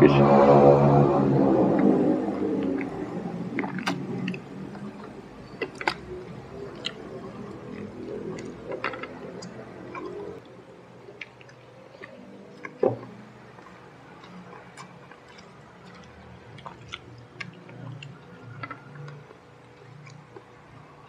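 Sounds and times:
soft chewing: 1.8 - 21.0
wet mouth clicks and lip smacks: 2.7 - 10.5, 11.1 - 20.5.

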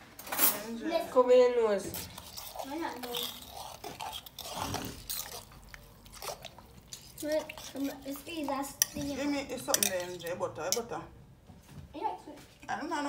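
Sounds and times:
liquid bubbling in pot: 1.9 - 10.4.

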